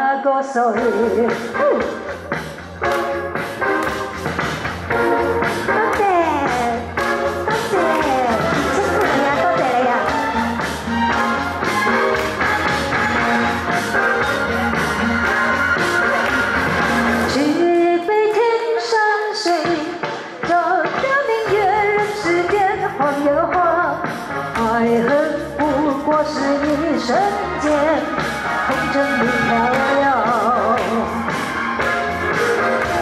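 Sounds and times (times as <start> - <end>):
woman singing into microphone: 0.0 - 2.2, 5.7 - 10.2, 17.2 - 31.3
rock backing track: 0.8 - 17.4, 19.9 - 33.0.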